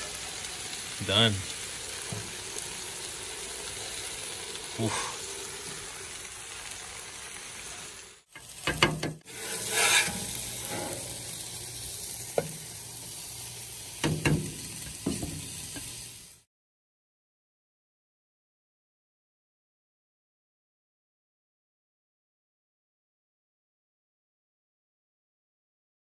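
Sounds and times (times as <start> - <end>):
food sizzling on a griddle: 0.0 - 16.5
metal spatula scraping griddle: 8.4 - 12.6.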